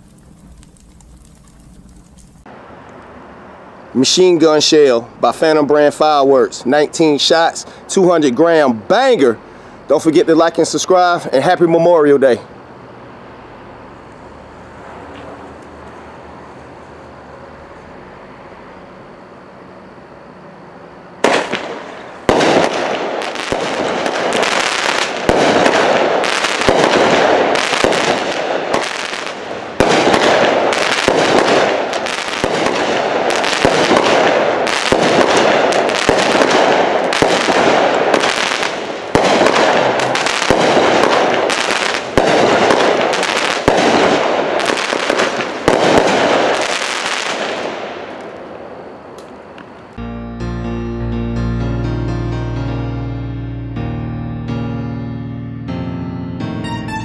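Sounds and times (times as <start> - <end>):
firework shots: 21.2 - 49.8.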